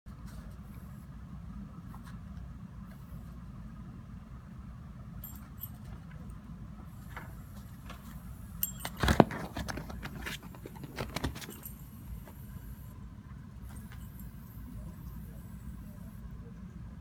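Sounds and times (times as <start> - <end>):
steady low hum: 0.1 - 17.0
dog collar jingling and clicking: 10.7 - 12.0.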